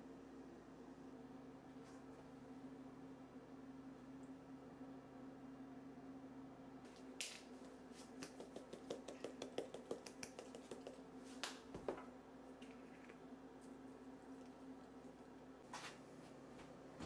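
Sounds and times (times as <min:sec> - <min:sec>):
faint steady hum: 0:00.0 - 0:17.0
light sharp clicks and taps: 0:08.2 - 0:11.6.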